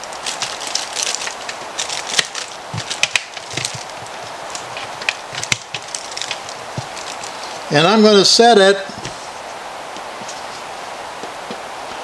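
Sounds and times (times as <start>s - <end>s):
plastic liner crinkling: 0.0s - 7.7s.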